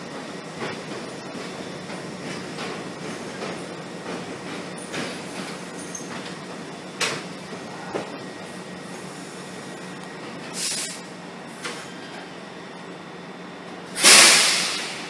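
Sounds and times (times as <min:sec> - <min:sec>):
subway train hum: 0:00.0 - 0:15.0
short loud hiss: 0:14.0 - 0:15.0.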